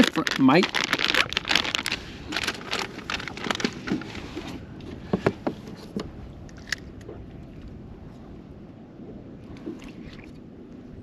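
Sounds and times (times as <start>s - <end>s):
plastic rustling: 0.0s - 4.2s.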